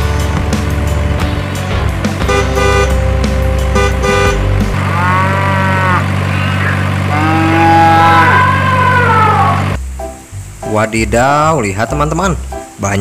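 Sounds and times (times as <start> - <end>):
background music: 0.0 - 13.0
cow mooing: 4.3 - 9.8.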